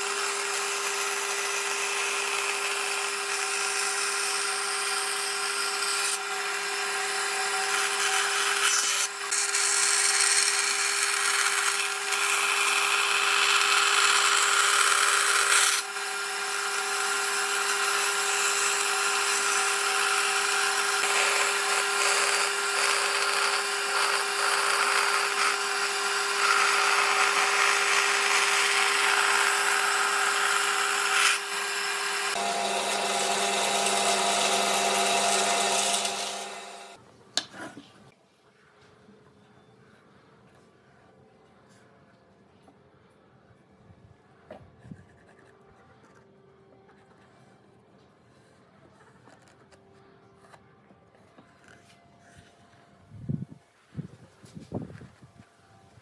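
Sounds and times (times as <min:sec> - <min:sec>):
bandsaw motor hum: 0:00.0 - 0:37.0
saw blade cutting wood: 0:00.0 - 0:37.0.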